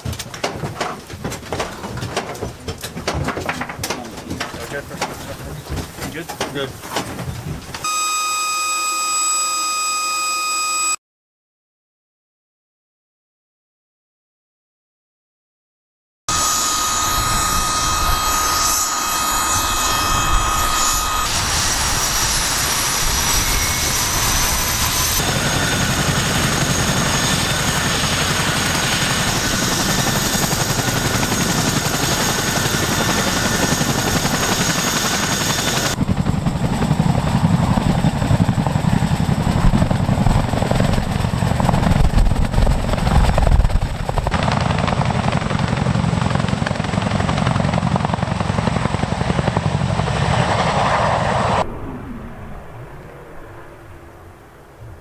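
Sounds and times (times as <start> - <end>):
helicopter rotor chop: 0.0 - 7.8, 16.3 - 53.3
high turbine whine: 7.7 - 11.0, 16.3 - 45.8, 48.4 - 55.0.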